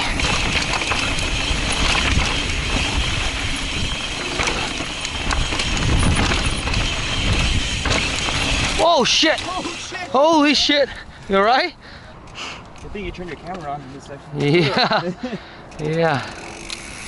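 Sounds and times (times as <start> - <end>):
wind rumble on microphone: 0.0 - 8.8
bike knocks and rattles: 0.0 - 9.9.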